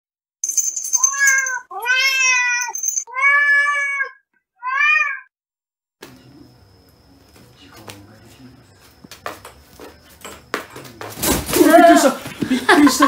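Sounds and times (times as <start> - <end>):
cat meowing: 1.0 - 5.3.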